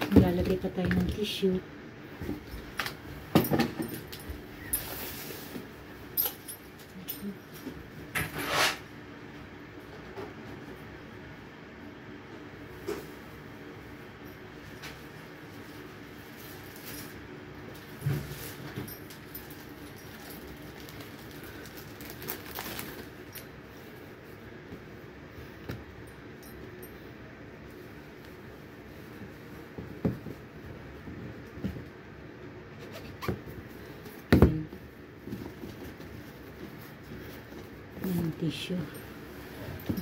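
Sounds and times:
tissue pack rustling: 14.6 - 24.4.

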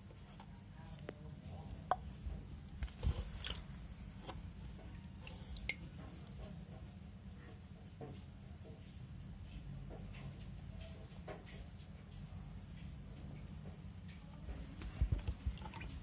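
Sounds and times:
small water splashes: 15.1 - 16.0.

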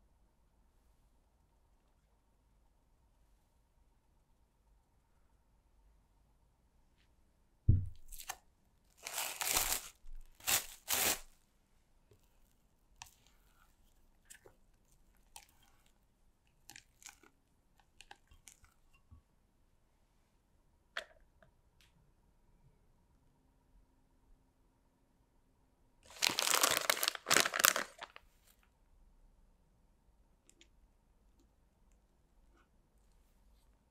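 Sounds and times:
thump: 7.7 - 8.1.

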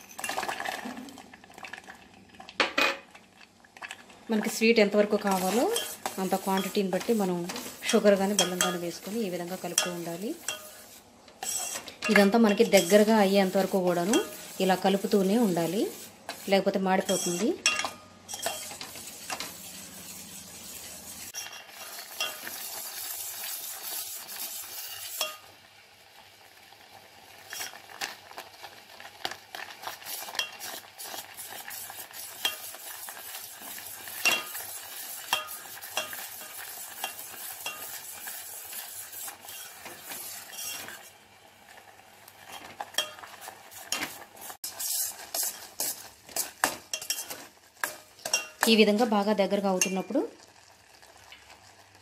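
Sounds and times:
milk sizzling: 0.0 - 52.0
ladle scraping a metal pan: 5.2 - 22.6, 33.7 - 41.2, 42.5 - 48.7.

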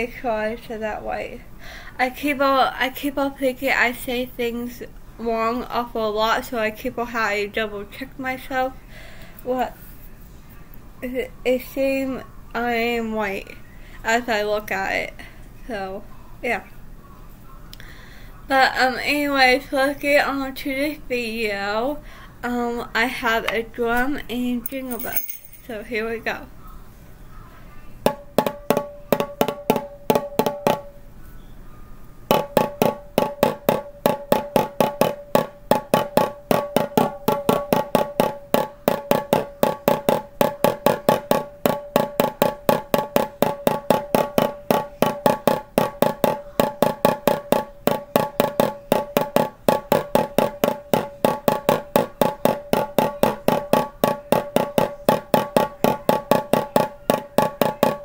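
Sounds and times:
hand drum beating: 32.3 - 58.0.

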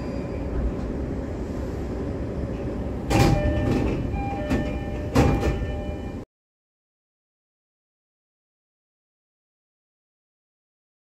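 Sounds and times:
train car low hum: 0.0 - 6.2
train doors sliding open: 0.0 - 6.2
door chime: 3.1 - 6.2.

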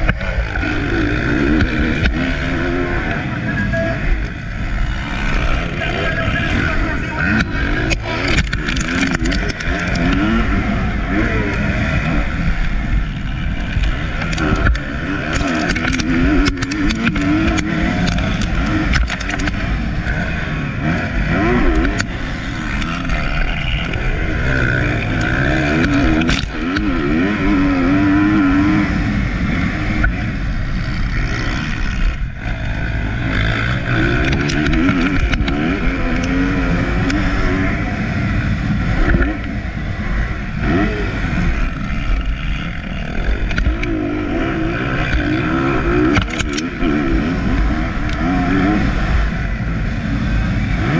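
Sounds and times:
motocross bike engine revving: 0.0 - 50.9.

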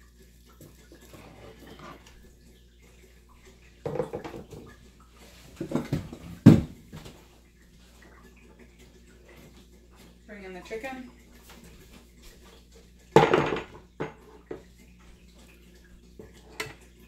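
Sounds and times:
kitchen items knocking and clattering: 3.8 - 4.7, 5.6 - 7.1, 13.1 - 14.7.

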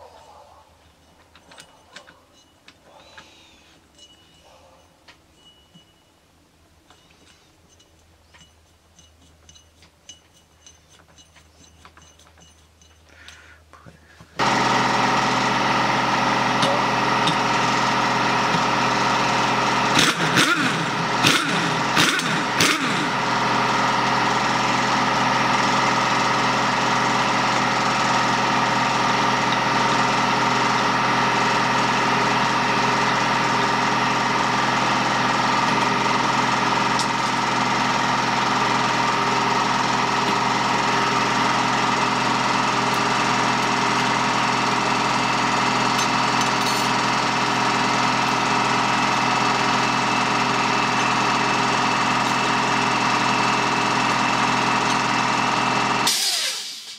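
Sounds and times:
air compressor running: 14.2 - 56.9.

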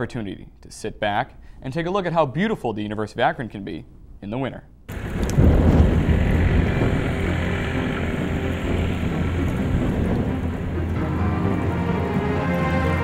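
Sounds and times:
low rumble: 4.9 - 13.0
higher musical notes: 5.4 - 13.0.

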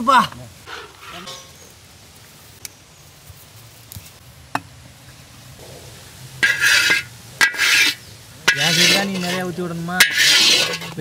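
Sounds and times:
metal scraping against pan: 0.7 - 1.6, 6.4 - 11.0.

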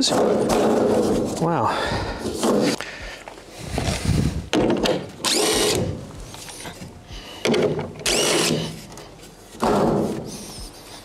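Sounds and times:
cordless drill whining: 4.8 - 6.8, 7.4 - 9.0.

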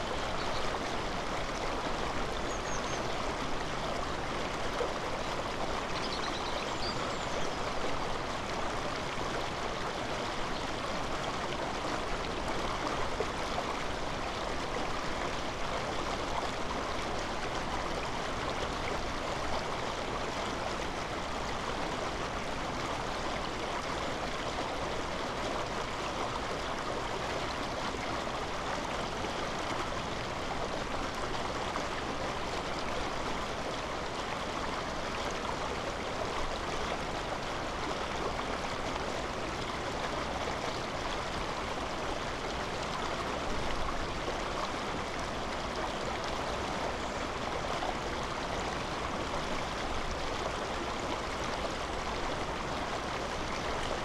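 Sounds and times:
running water rushing: 0.0 - 54.0.

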